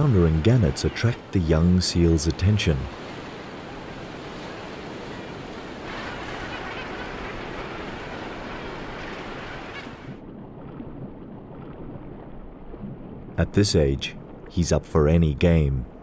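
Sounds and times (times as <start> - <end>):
surf washing: 0.0 - 16.0.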